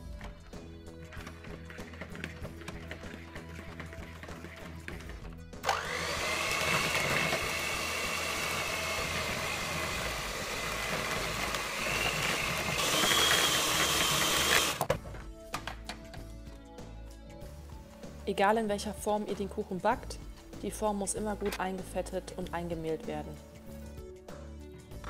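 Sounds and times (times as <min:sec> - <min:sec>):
electric hand mixer whining: 0:05.6 - 0:14.9.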